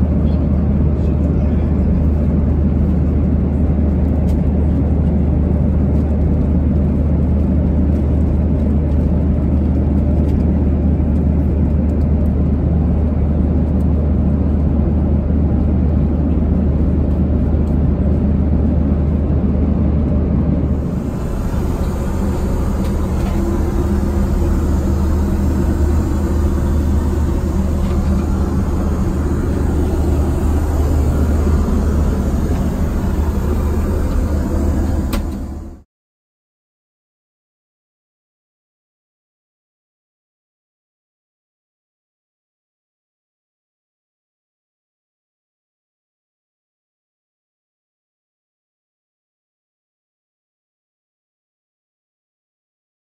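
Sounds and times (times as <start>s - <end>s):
airplane cabin engine rumble: 0.0s - 35.9s
faint steady hum: 20.7s - 35.8s.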